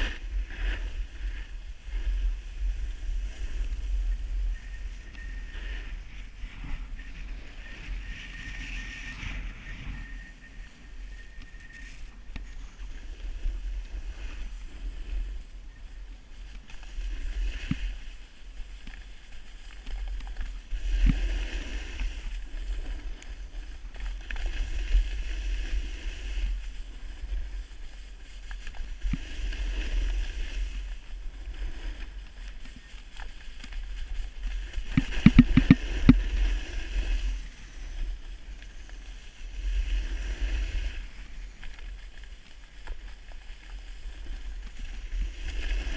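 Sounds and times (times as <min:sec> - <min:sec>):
snowboard scraping over snow: 0:00.0 - 0:45.9
wind buffeting microphone: 0:33.8 - 0:41.4.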